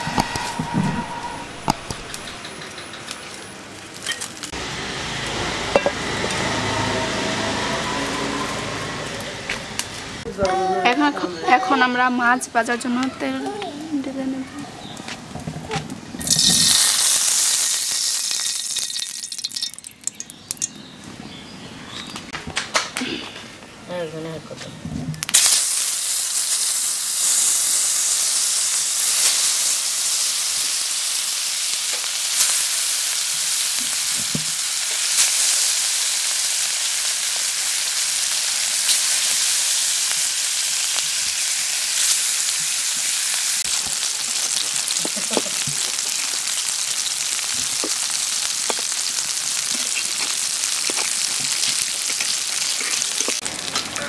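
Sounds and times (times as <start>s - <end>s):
fish sizzling in hot oil: 16.2s - 20.8s, 25.3s - 54.0s.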